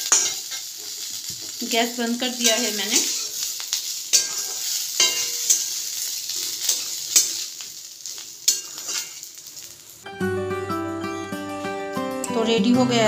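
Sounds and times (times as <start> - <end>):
metal spatula scraping a pan: 0.0 - 1.1, 2.4 - 9.6
hot oil sizzling: 0.0 - 10.2.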